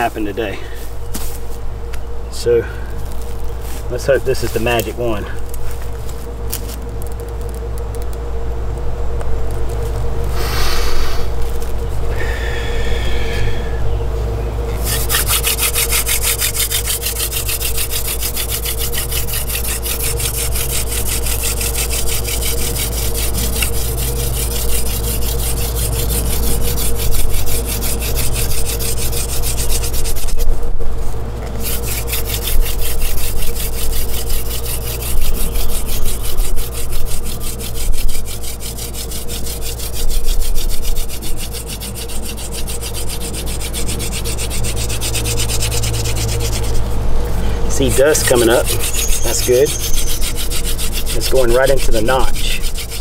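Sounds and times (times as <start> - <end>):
wooden hand drill grinding: 14.8 - 30.6, 31.4 - 53.0.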